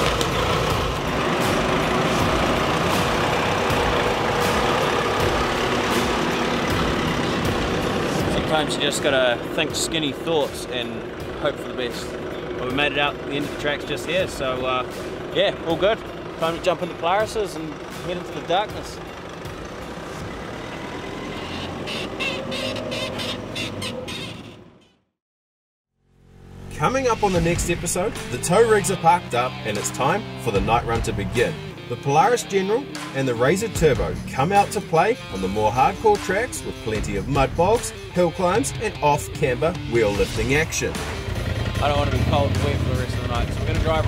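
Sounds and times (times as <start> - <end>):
pickup engine running at low revs: 0.0 - 21.5, 33.4 - 44.0.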